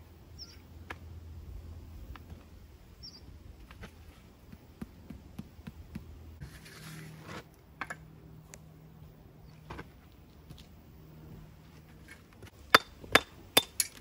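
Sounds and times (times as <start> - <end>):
short scraping: 6.4 - 7.5.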